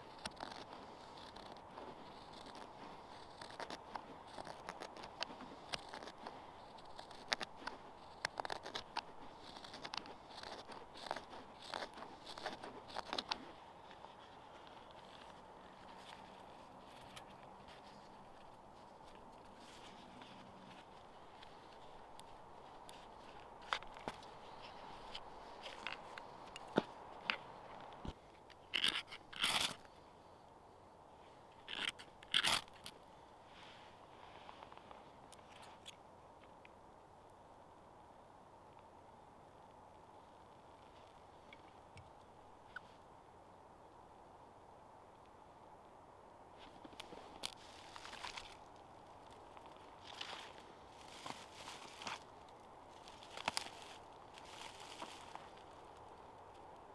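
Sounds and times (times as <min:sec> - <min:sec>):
knife carving wood: 0:00.0 - 0:29.9, 0:31.6 - 0:33.0.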